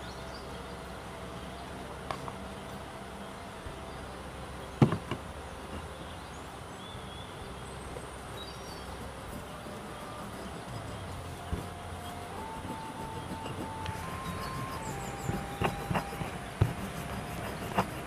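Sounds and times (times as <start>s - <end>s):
faint bird chirps: 5.7s - 17.8s
grinding in stone bowl: 9.0s - 18.0s.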